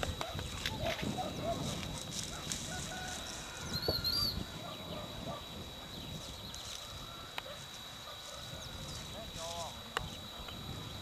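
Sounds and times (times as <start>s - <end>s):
footsteps in dry grass: 0.0s - 4.4s, 6.0s - 10.3s
faint bird chirps: 3.7s - 5.0s.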